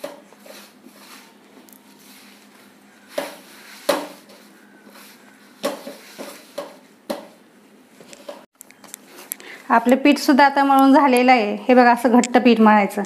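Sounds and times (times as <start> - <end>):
dough kneaded by hand: 0.0 - 7.4.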